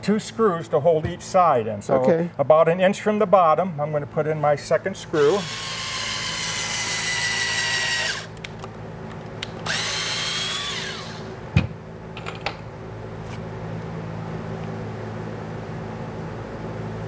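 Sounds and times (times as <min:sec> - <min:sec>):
power drill into wood: 0:05.2 - 0:08.3, 0:09.6 - 0:11.3.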